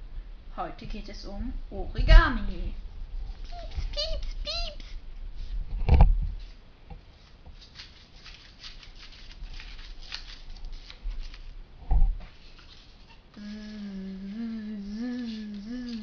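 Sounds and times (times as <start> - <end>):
paper rustling and crinkling: 7.2 - 11.6, 12.3 - 13.2
person humming: 13.4 - 16.0.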